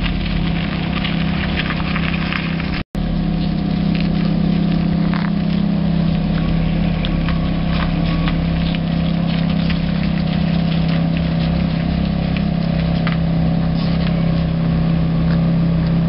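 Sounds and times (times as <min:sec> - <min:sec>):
car engine at low revs: 0:00.0 - 0:16.0.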